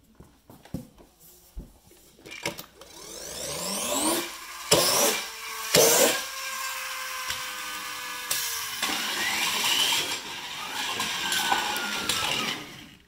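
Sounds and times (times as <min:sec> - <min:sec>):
toy car flywheel whine: 0:02.3 - 0:13.0.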